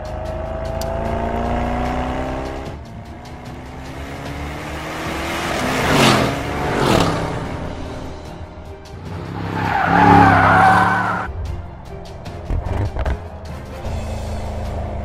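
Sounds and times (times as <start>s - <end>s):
car engine accelerating hard: 0.0s - 11.3s.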